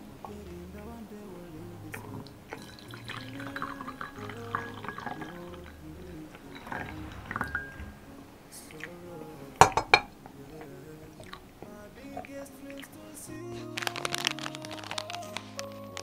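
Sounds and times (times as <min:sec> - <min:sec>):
background music: 0:00.0 - 0:16.0
tea pouring into a mug: 0:01.9 - 0:13.1.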